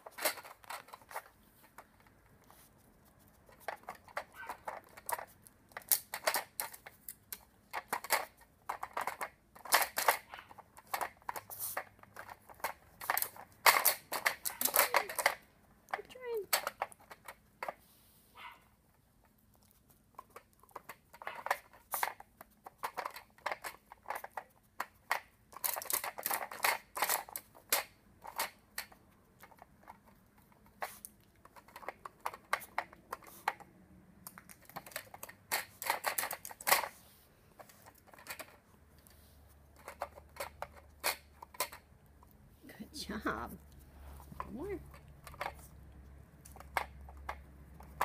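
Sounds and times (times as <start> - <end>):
puzzle toy clicks and knocks: 3.5 - 17.7.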